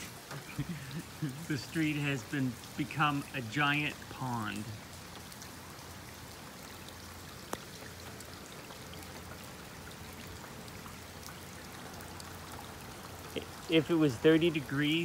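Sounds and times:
rain falling on water: 0.0s - 15.0s.

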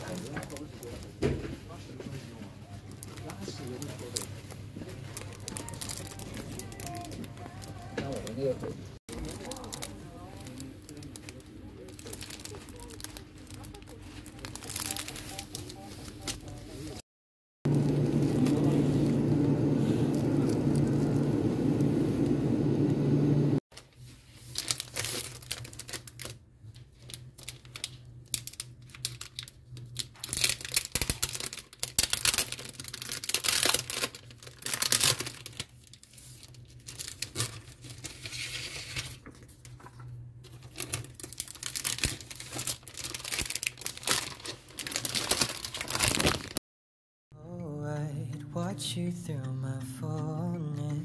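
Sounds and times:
plastic sleeve crinkling: 0.0s - 17.0s, 17.7s - 21.4s, 23.7s - 46.6s
steady shop hum: 0.0s - 17.0s, 17.6s - 24.5s, 47.3s - 51.0s.

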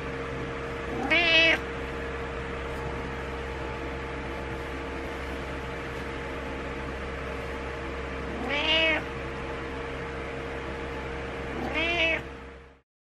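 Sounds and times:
background hum: 0.0s - 12.8s
cat meowing: 0.9s - 1.7s, 8.3s - 9.1s, 11.5s - 12.3s.

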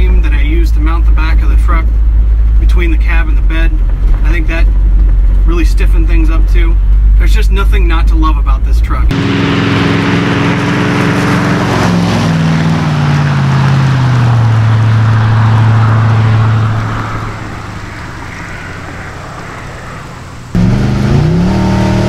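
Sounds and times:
pickup truck engine driving past: 9.1s - 22.0s.

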